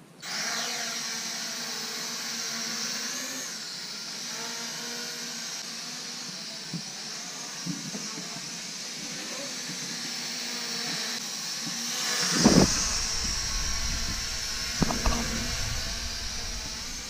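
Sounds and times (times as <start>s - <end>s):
drone propellers whining: 12.2s - 17.0s.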